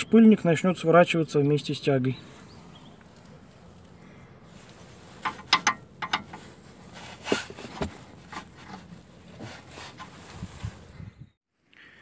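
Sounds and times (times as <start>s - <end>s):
wrench clicking and scraping: 5.2s - 6.4s.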